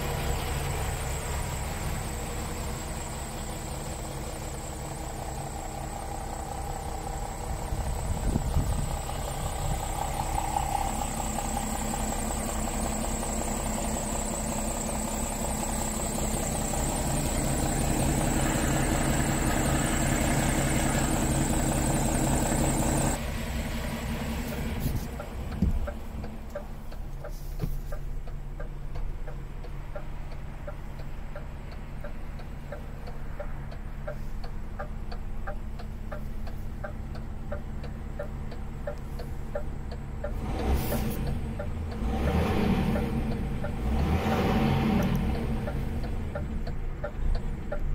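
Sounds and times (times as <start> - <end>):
truck diesel engine idling: 0.0 - 47.9
light ticking: 24.4 - 47.9.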